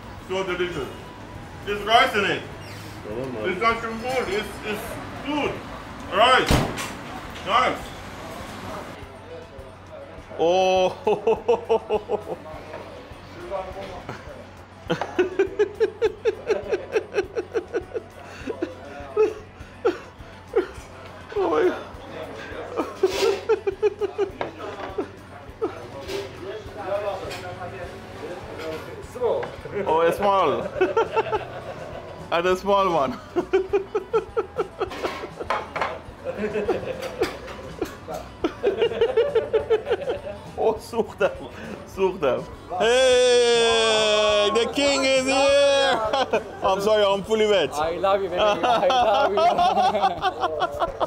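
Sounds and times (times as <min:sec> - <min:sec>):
dishes and cutlery clattering: 0:34.8 - 0:38.5
person laughing hard: 0:42.8 - 0:46.5.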